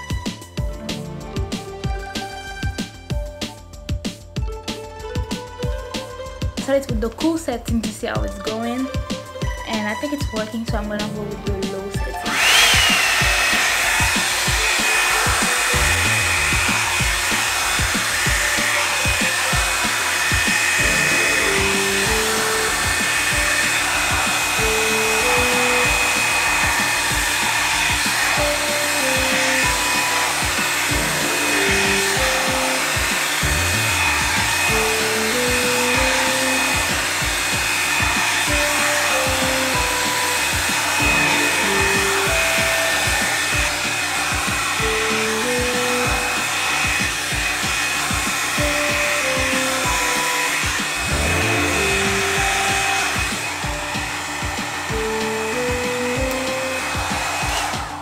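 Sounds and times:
background music with steady beat: 0.0s - 58.0s
hair dryer brush whooshing: 12.2s - 58.0s.

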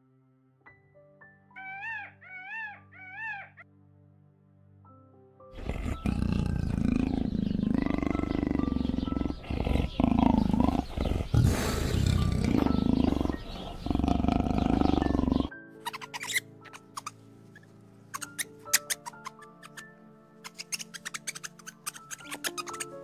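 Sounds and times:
background music with plucked notes: 4.7s - 23.0s
big cat growling and roaring: 5.6s - 15.5s.

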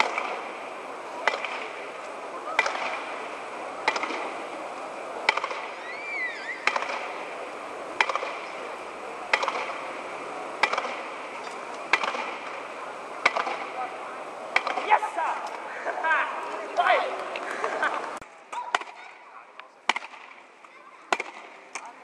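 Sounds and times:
jumping stilts clacking on stone: 2.5s - 3.2s, 3.8s - 4.4s
rising and falling chirp: 5.8s - 6.7s.

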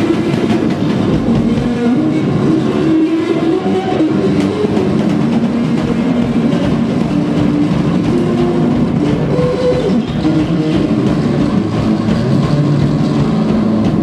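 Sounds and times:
drums and amplified distortion: 0.0s - 14.0s
bass guitar low notes: 3.6s - 14.0s.

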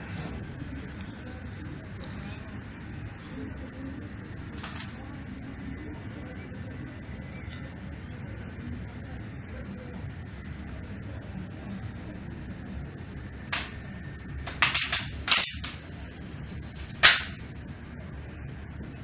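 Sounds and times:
sharp cracks: 13.5s - 15.8s, 16.8s - 17.5s.

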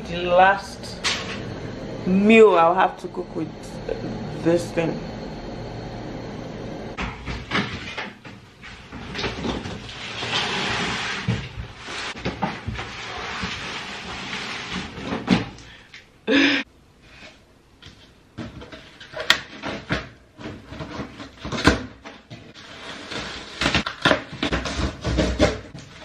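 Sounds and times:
cardboard ripping and rustling: 8.6s - 15.4s, 20.5s - 26.0s.

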